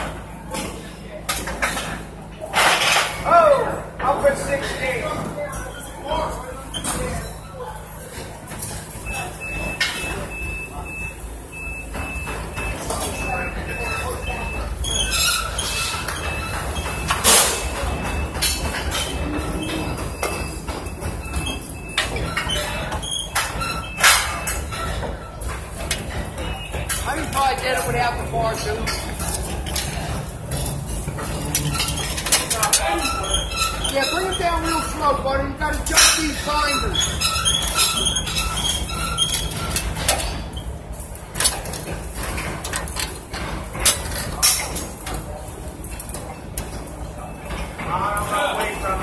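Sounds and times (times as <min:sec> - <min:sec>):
metal squeaks: 0:12.7 - 0:45.2.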